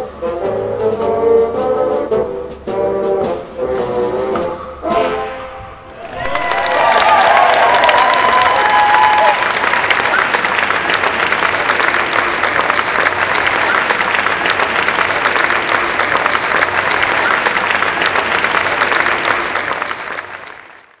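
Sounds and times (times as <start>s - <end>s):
audience applauding: 5.9s - 21.0s.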